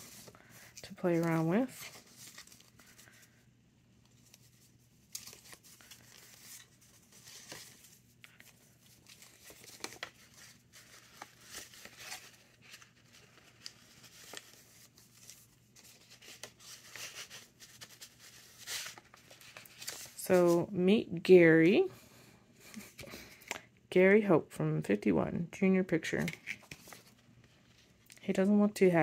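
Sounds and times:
paper rustling and sliding: 0.0s - 3.4s, 4.1s - 20.6s.

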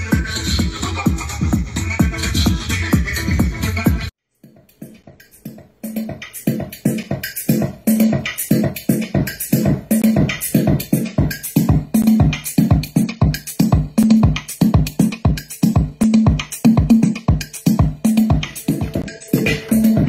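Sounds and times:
bass line: 0.0s - 4.1s, 15.8s - 20.0s
electronic music with drum-machine beat: 0.0s - 20.0s.

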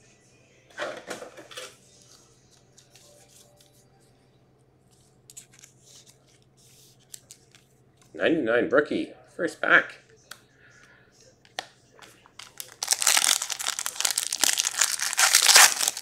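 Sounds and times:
card rustling in plastic sleeve: 5.0s - 7.7s, 12.3s - 16.0s.

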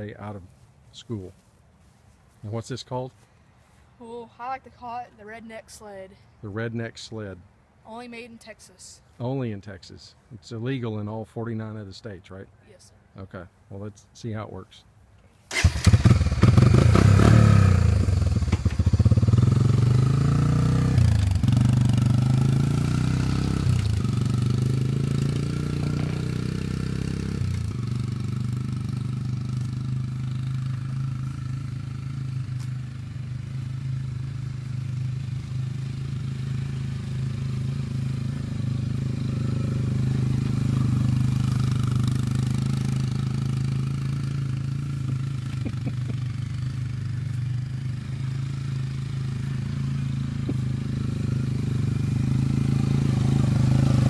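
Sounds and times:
quad engine under throttle: 15.5s - 54.0s.

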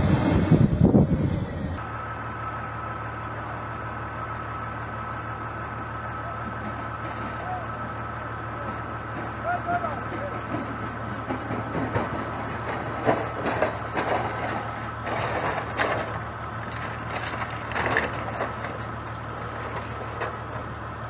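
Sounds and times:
low engine hum: 0.0s - 21.0s
knocks and cracks: 10.5s - 18.8s.

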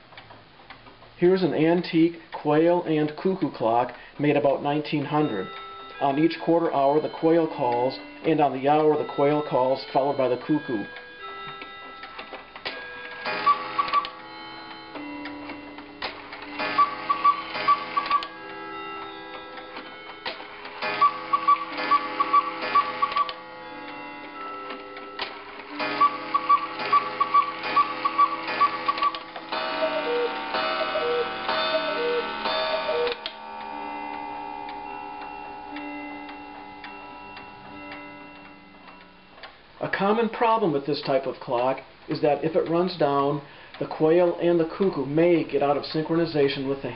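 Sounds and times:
clock ticking: 2.1s - 39.6s
lingering ring: 12.7s - 39.4s
two-note cuckoo calls: 16.7s - 18.3s, 25.9s - 33.4s.

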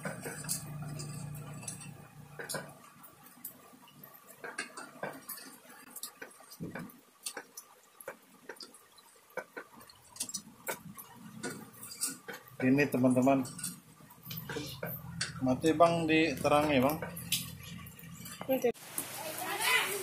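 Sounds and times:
metal spoon scraping pot: 0.0s - 2.8s, 9.8s - 15.5s
low steady hum: 0.0s - 6.9s, 9.8s - 18.7s.

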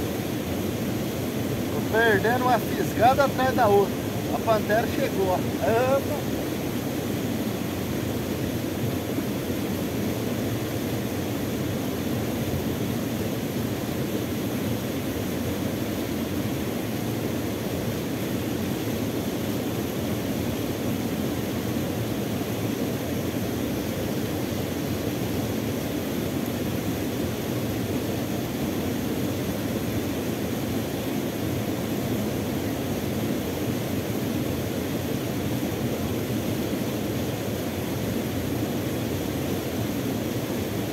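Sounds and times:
waterfall rushing: 1.4s - 7.8s.

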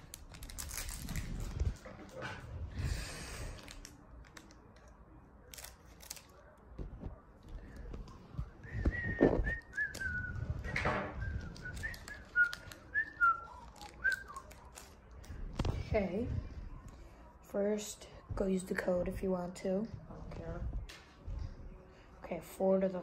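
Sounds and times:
wrapper rustling: 0.0s - 2.2s, 11.2s - 15.8s
person whistling: 8.6s - 14.4s.

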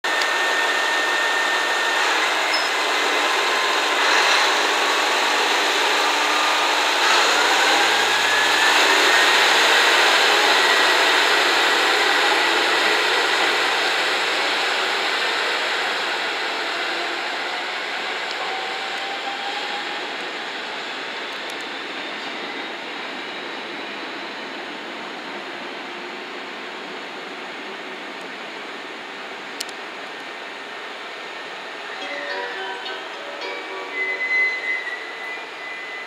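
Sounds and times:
diesel railcar engine and running gear: 0.0s - 36.0s
rising whine: 0.1s - 27.0s, 30.3s - 36.0s.

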